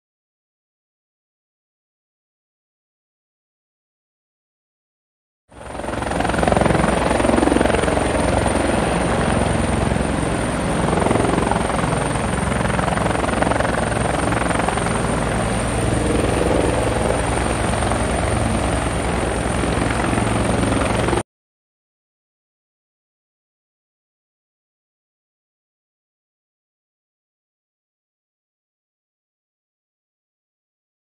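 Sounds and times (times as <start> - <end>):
helicopter rotor chop: 5.6 - 21.2.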